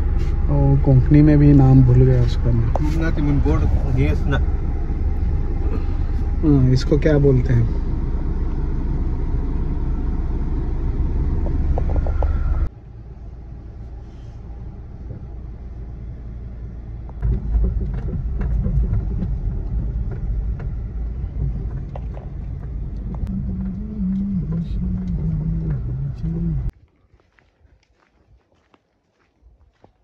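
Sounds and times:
engine and tyres rumbling: 0.0 - 26.8
car knocks and rattles: 11.3 - 12.7, 17.0 - 26.7.

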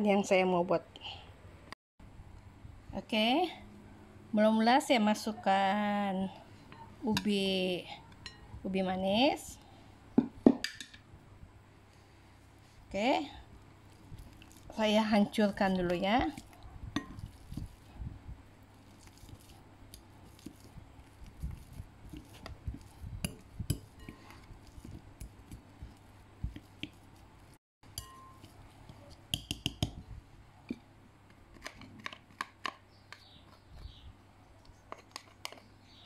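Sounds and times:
soft squishing of mash: 11.8 - 36.0
masher tapping glass bowl: 27.9 - 28.5, 29.3 - 30.0.

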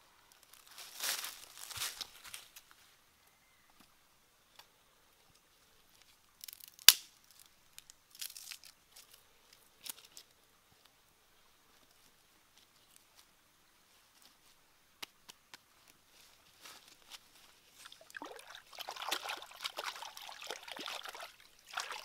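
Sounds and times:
dry leaves and twigs crackling: 0.3 - 3.0, 5.3 - 11.0, 11.7 - 18.4
twig snapping: 6.4 - 8.8.

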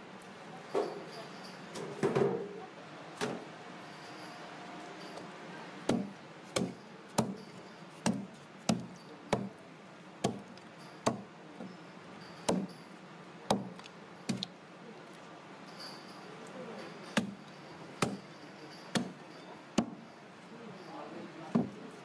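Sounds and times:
knife chopping onto wooden block: 5.9 - 7.4, 8.0 - 9.6, 10.2 - 10.5, 11.1 - 11.3, 12.5 - 12.8, 13.5 - 14.5, 17.2 - 17.4, 18.0 - 18.2, 19.0 - 19.2, 19.8 - 20.0.

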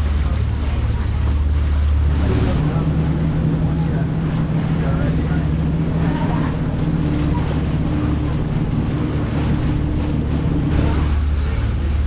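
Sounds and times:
boat engine humming: 0.0 - 12.0
wind and water rushing: 0.0 - 12.0.

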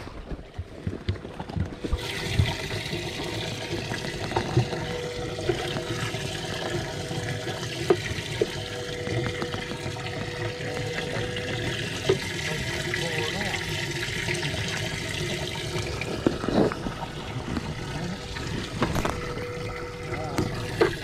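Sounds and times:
faint motor hum: 0.0 - 21.0
water pouring from pump: 0.0 - 21.0.

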